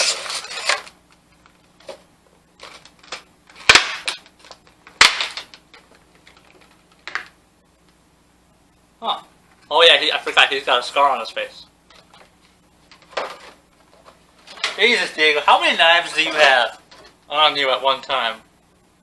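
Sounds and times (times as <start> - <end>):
plastic packaging crackling: 0.0 - 2.0, 2.6 - 7.4.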